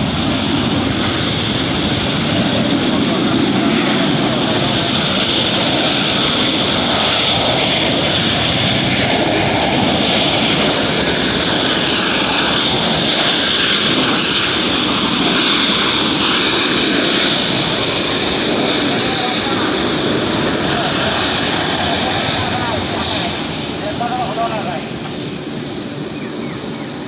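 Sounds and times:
jet engines rushing: 0:00.0 - 0:27.0.

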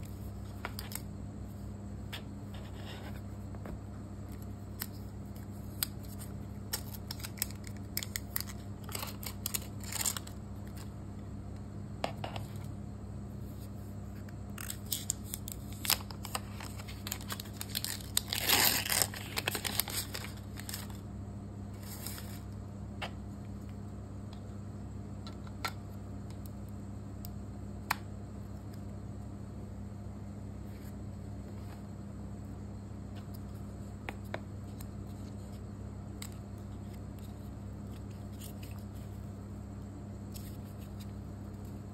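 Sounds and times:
plastic adapter handling noise: 0:04.3 - 0:10.9.

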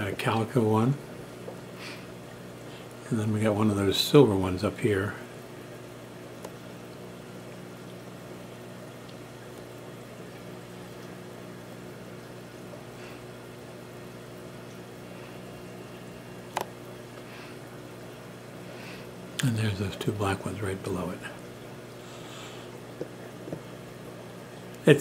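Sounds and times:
aquarium pump humming: 0:00.0 - 0:25.0
water bubbling: 0:05.2 - 0:25.0.

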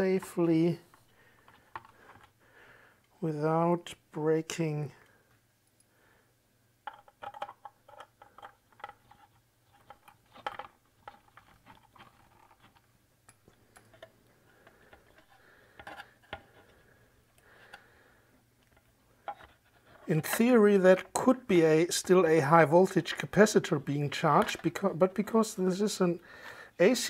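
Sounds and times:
plastic housing clicks and knocks: 0:06.8 - 0:09.2.

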